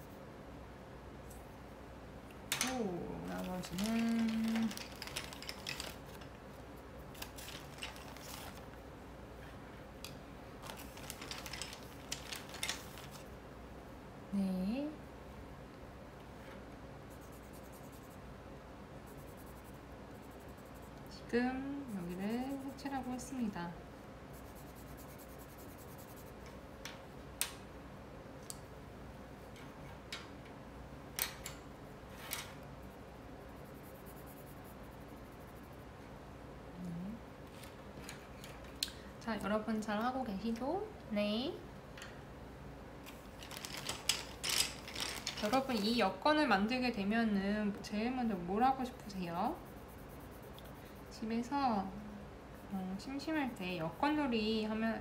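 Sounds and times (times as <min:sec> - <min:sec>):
faint steady background: 0:00.0 - 0:55.0
pens clicking on tabletop: 0:03.5 - 0:06.3, 0:43.5 - 0:45.9
colored pencil scratching paper: 0:17.1 - 0:18.2, 0:19.0 - 0:21.1, 0:21.8 - 0:23.5, 0:24.3 - 0:26.4, 0:32.8 - 0:35.9, 0:48.6 - 0:51.2.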